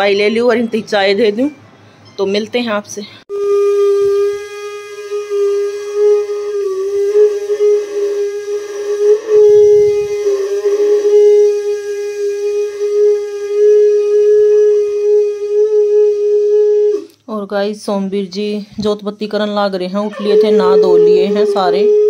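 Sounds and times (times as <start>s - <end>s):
conch shell blown: 3.3s - 17.1s, 20.5s - 22.0s.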